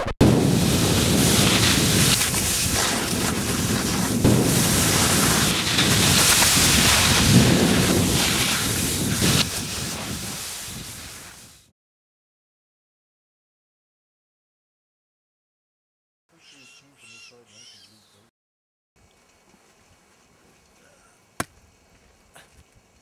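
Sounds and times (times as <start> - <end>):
snow avalanche rumbling: 0.0 - 11.7.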